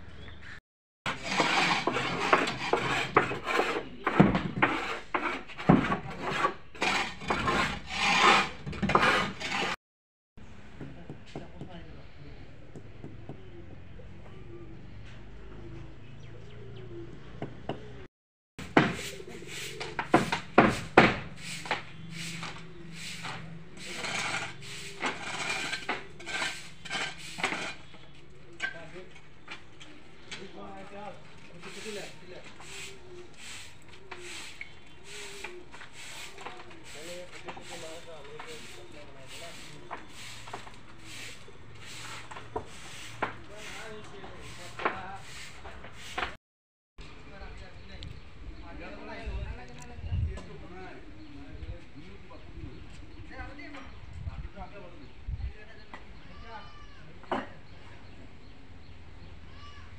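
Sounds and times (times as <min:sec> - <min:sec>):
metal tools scraping wet concrete: 0:01.1 - 0:09.8, 0:18.9 - 0:28.8, 0:31.4 - 0:46.4
sharp wooden knocks: 0:18.6 - 0:19.0, 0:19.9 - 0:21.8.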